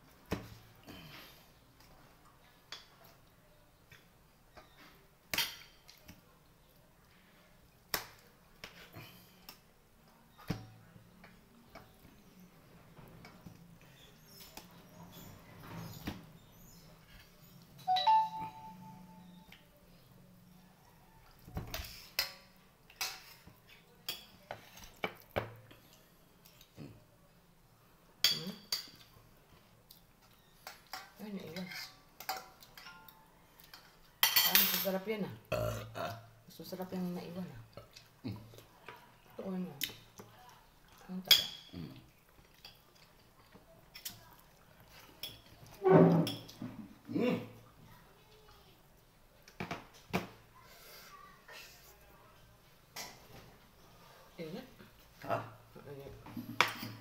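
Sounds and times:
dishes and spoons clinking: 4.6 - 6.0, 30.6 - 35.0, 41.3 - 41.8, 45.0 - 46.8, 56.3 - 57.0
tableware clinking on metal bowl: 34.2 - 35.0, 41.3 - 41.7, 45.2 - 46.6, 56.5 - 57.0.

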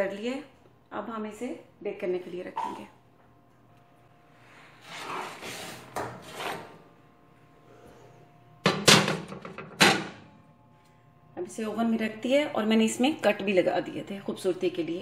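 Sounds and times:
metal tray scraping: 4.8 - 6.8.

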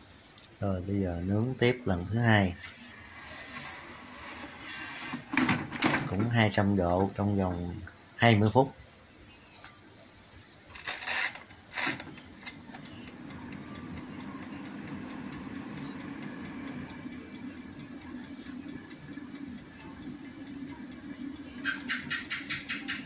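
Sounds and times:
fan humming: 0.0 - 8.7, 10.5 - 23.0
clockwork timer ticking: 3.0 - 5.2, 10.7 - 23.0
timer knob click: 10.8 - 23.0.

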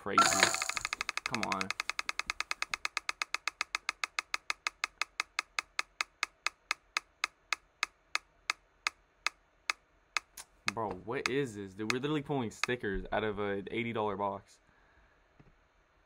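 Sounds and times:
rapid ticking clicks: 0.2 - 8.6.

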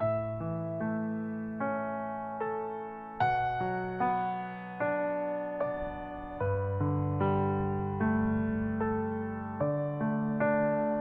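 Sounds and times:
slow sustained keyboard notes: 2.9 - 11.0.

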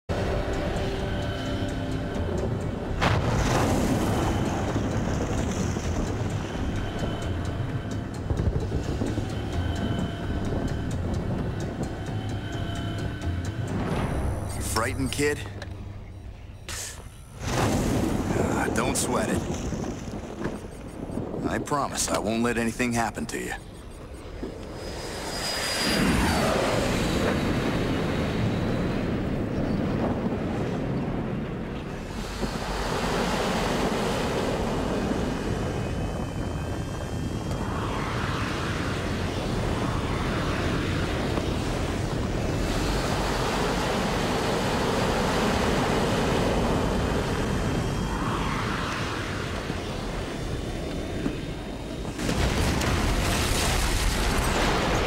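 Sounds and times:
background music: 0.1 - 17.6
low rumble: 23.6 - 55.0
sudden swell of noise: 24.6 - 29.4, 32.0 - 53.4
spacecraft engine flying past: 24.7 - 28.6.

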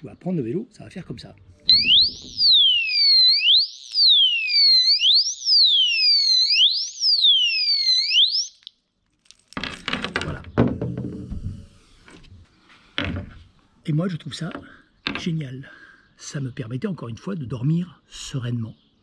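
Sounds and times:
electronic alarm siren sweeping: 1.7 - 8.7
clattering knocks of handling: 9.3 - 12.3, 13.0 - 13.5, 14.5 - 15.3.

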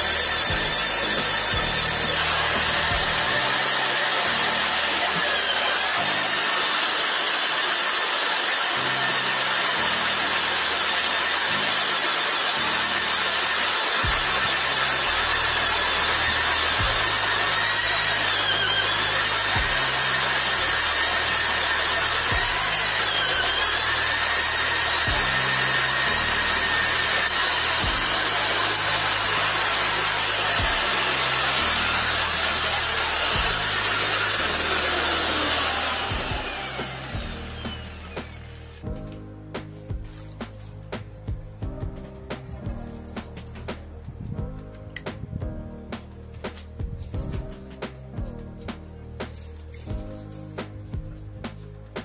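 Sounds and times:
drill motor whine: 0.0 - 38.9.

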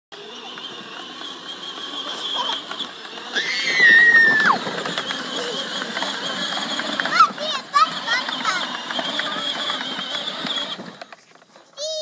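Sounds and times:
girl squealing: 3.3 - 4.7.

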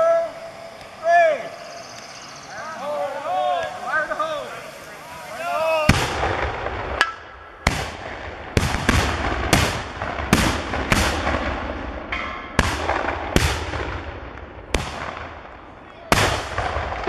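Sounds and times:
small cannons firing: 5.6 - 17.0.

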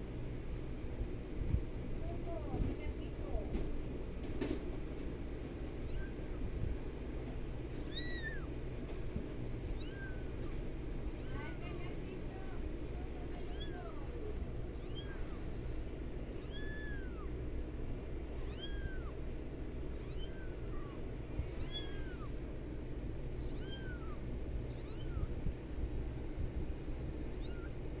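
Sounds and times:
low background noise: 0.0 - 28.0
kitten mewing: 5.8 - 6.4, 7.7 - 8.6, 9.6 - 12.5, 13.2 - 15.6, 16.3 - 17.4, 18.3 - 19.3, 19.9 - 22.5, 23.4 - 25.4, 27.2 - 27.8.

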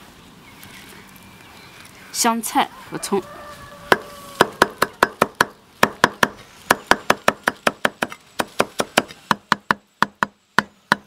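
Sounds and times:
cleaver chopping on wooden block: 3.9 - 11.0.

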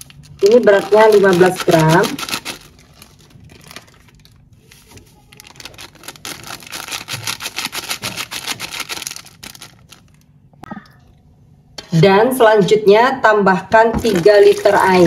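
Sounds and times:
powder pattering on metal pot: 0.0 - 4.2, 14.0 - 15.0.

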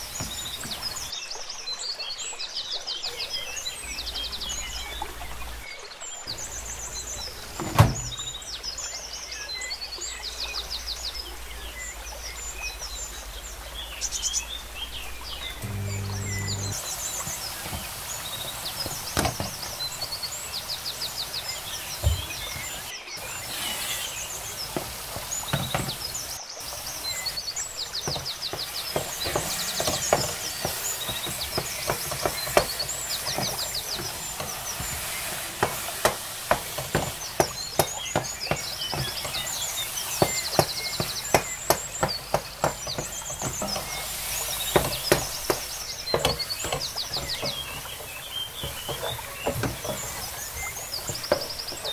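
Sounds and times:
birds chirping and trilling: 0.0 - 51.9
wooden spoon scraping metal pot: 15.6 - 16.8, 28.1 - 51.8.

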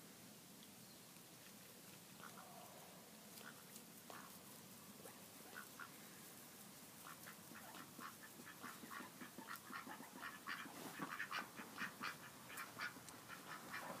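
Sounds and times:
ducks quacking: 5.4 - 6.0, 7.0 - 14.0.

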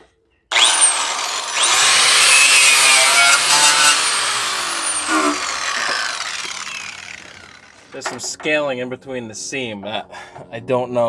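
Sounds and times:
angle grinder wire wheel grating: 0.5 - 8.0.

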